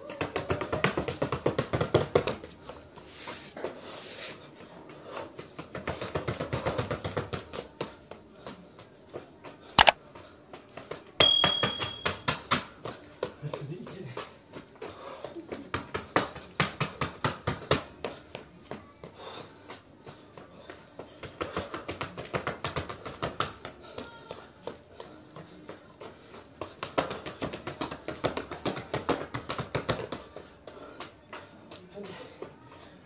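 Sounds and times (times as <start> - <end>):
sneakers tapping on concrete: 5.4 - 32.6.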